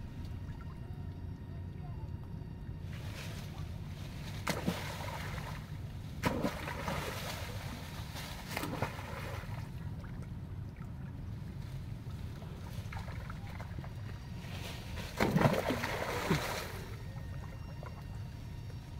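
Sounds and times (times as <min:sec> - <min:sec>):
steady low rumble: 0:00.0 - 0:18.9
water splashing: 0:02.9 - 0:11.1, 0:14.8 - 0:18.2.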